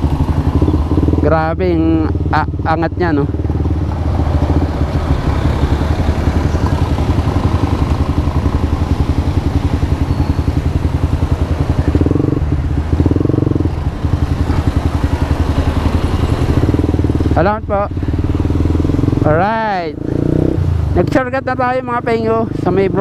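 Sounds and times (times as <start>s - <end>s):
motorcycle engine running: 0.0s - 23.0s.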